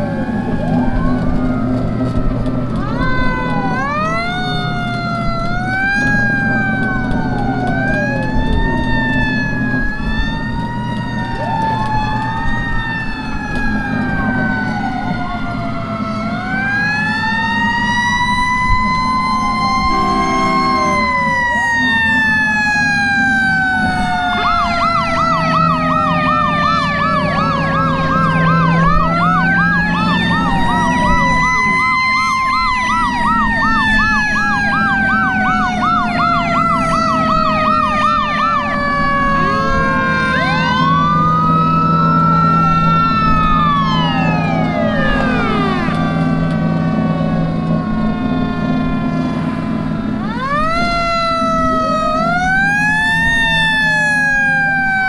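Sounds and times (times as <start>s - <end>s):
fast yelping siren: 0.0s - 55.0s
truck engine running: 0.0s - 55.0s
wailing fire engine sirens: 0.0s - 55.0s
horn blast: 19.7s - 21.3s.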